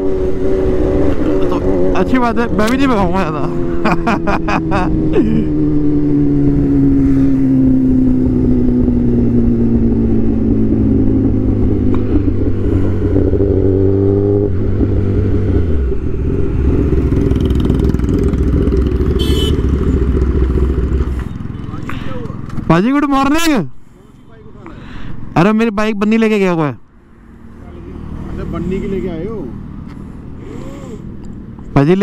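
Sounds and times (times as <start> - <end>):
motorcycle engine running: 0.0 - 22.7.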